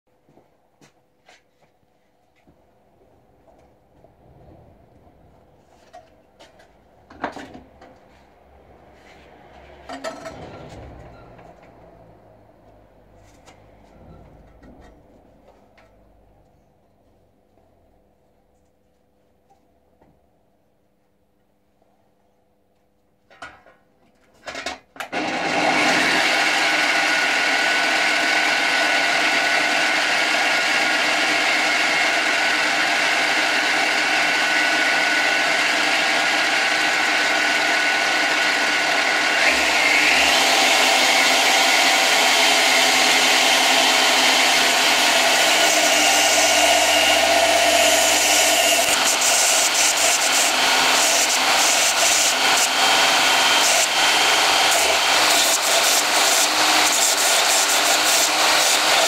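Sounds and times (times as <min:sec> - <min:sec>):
belt grinder running: 0:25.2 - 0:59.0.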